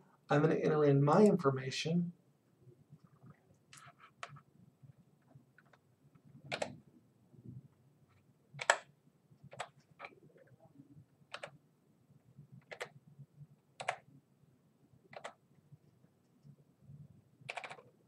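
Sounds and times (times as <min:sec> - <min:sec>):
keyboard keystrokes: 0:06.5 - 0:06.8, 0:08.6 - 0:08.9, 0:11.3 - 0:11.6, 0:12.6 - 0:13.0, 0:13.8 - 0:14.1, 0:15.1 - 0:15.4, 0:17.5 - 0:17.9.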